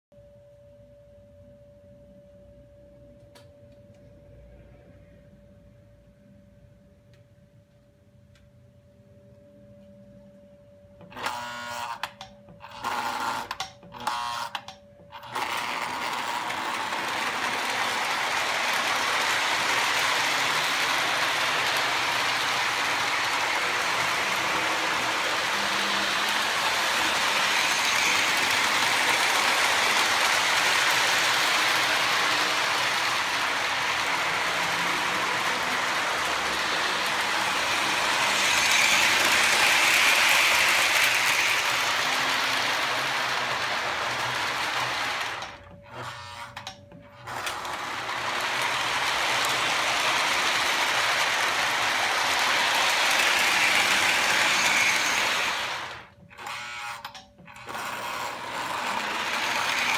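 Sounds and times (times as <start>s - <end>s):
model train motors whirring: 11.1s - 59.9s
wheels clattering over track: 15.3s - 45.6s, 46.6s - 56.1s.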